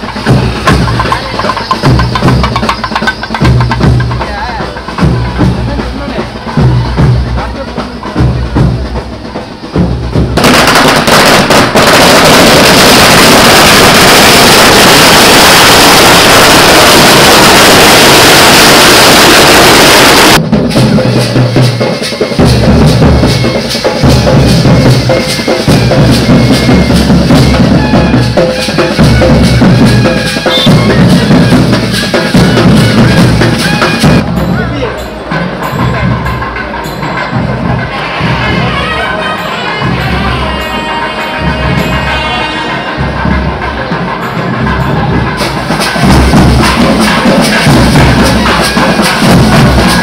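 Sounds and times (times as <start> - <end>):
firecrackers crackling and banging: 0.0 - 5.2, 10.3 - 20.8, 43.6 - 50.0
drum-led music: 0.0 - 50.0.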